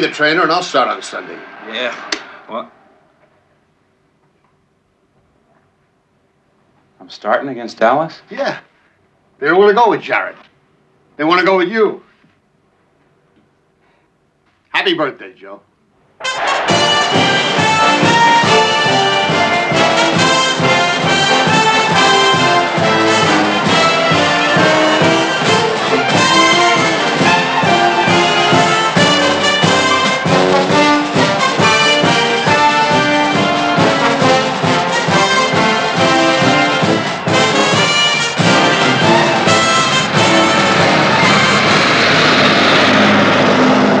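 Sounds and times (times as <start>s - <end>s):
steady beat: 16.2s - 42.2s
brass instruments playing melody: 16.2s - 43.9s
orchestral film score: 16.2s - 44.0s.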